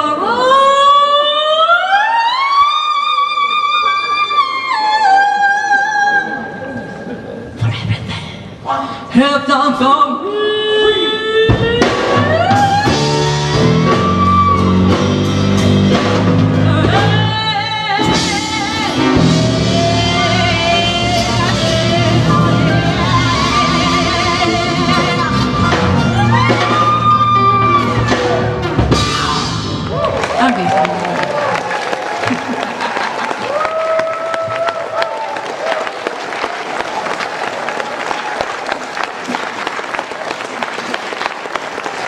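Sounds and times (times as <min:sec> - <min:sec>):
woman singing blues: 0:08.9 - 0:15.2, 0:15.9 - 0:28.4
blues band playing: 0:11.3 - 0:33.2.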